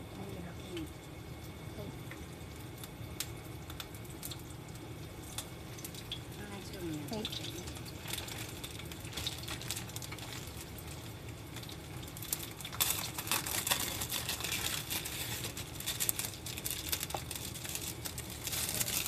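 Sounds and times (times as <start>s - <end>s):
steady low hum: 0.0s - 19.0s
plastic packet crinkling: 7.2s - 19.0s.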